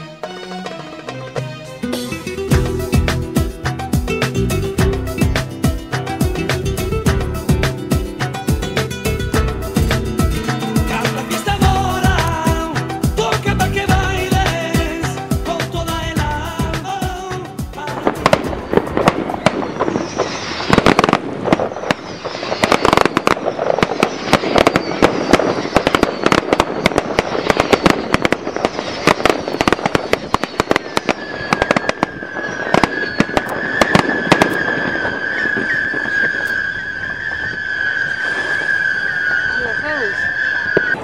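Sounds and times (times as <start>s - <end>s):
fireworks bangs and crackles: 2.5s - 41.0s
whistling fireworks: 9.8s - 15.7s, 16.8s - 41.0s.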